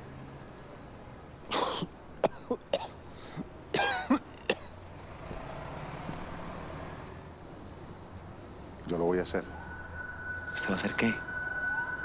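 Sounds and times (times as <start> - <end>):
man coughing: 1.6 - 3.0, 3.7 - 4.7.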